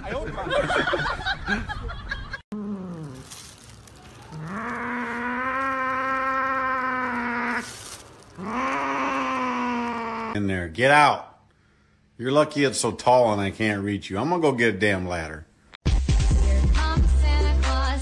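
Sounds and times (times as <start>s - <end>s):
cat yowling: 4.2s - 10.4s.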